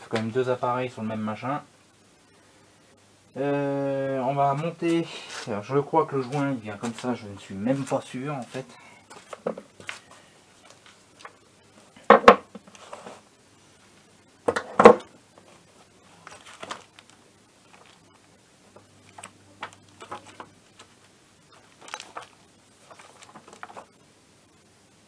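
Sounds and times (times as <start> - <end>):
paper pages rustling: 4.5 - 11.4, 12.6 - 13.3, 15.4 - 24.0
objects clattering on workbench: 9.1 - 10.0, 12.0 - 13.2, 14.5 - 15.2.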